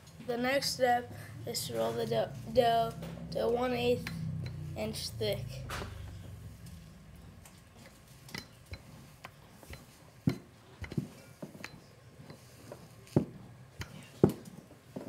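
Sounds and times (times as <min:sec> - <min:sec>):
rolling pin rolling dough: 0:05.7 - 0:15.0.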